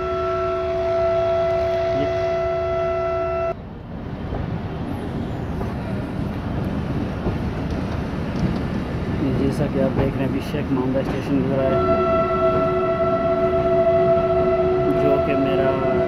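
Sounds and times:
train horn blast: 0.0s - 3.6s, 11.5s - 16.0s
train rumbling along track: 0.0s - 16.0s.

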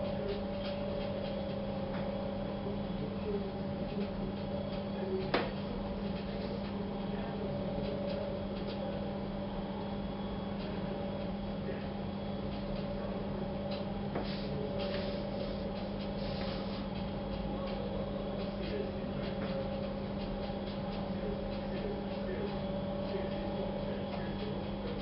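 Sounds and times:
low electrical hum: 0.0s - 25.0s.

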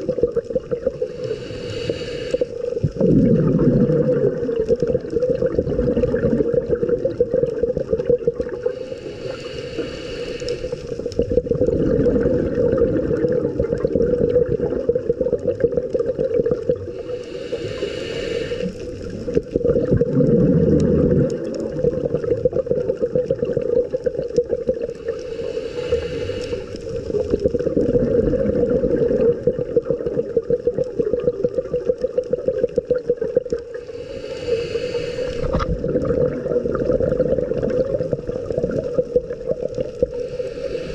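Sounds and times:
bubbly exhalation: 0.0s - 1.2s, 2.7s - 8.8s, 11.0s - 17.0s, 18.8s - 25.0s, 26.5s - 33.9s, 35.2s - 40.1s
underwater hum: 0.0s - 40.9s
regulator inhalation hiss: 0.9s - 2.9s, 8.5s - 11.2s, 16.8s - 19.3s, 24.8s - 27.4s, 33.7s - 35.6s, 40.0s - 40.9s.

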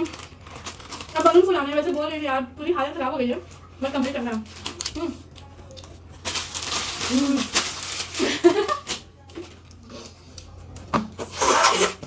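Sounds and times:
plastic packet crinkling: 0.0s - 2.1s, 3.9s - 9.8s
woman's voice: 1.1s - 5.3s.

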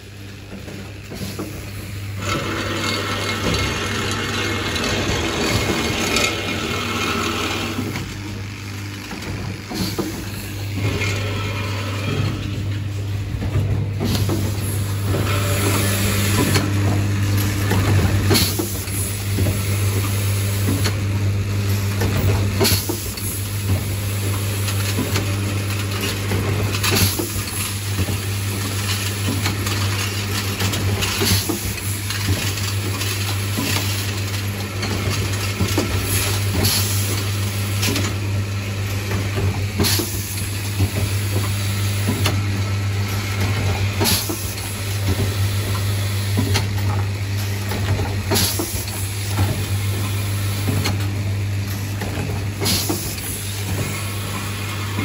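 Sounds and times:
pneumatic actuators clacking: 0.5s - 21.0s, 21.9s - 38.3s, 38.9s - 55.0s
vibratory feed track hum: 2.0s - 18.3s.

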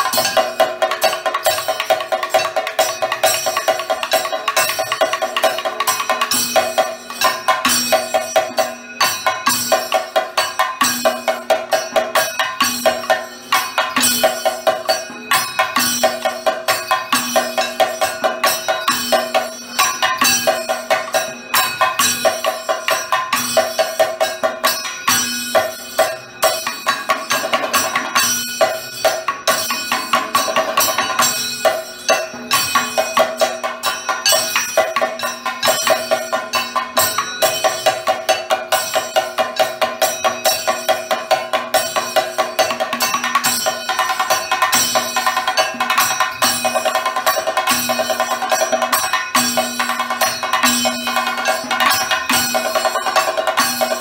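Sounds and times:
drums in fast rhythm: 0.0s - 54.0s.

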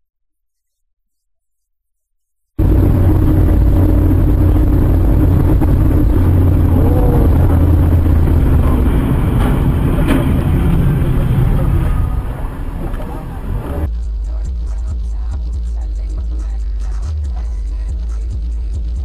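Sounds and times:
road noise: 2.6s - 13.9s
vehicle engine rumble: 2.6s - 19.0s.

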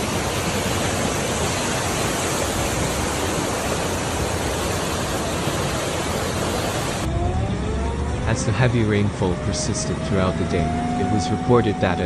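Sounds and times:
floodwater rushing in channel: 0.0s - 7.3s.

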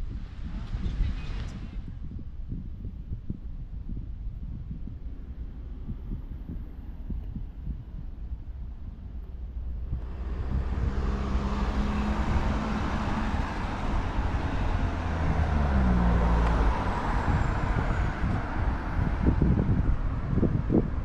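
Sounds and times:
vehicle engine droning past: 9.8s - 20.6s.

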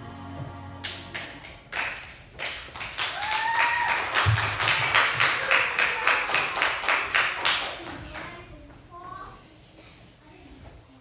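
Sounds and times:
small audience applauding: 0.8s - 8.4s
person cheering: 3.1s - 4.1s.

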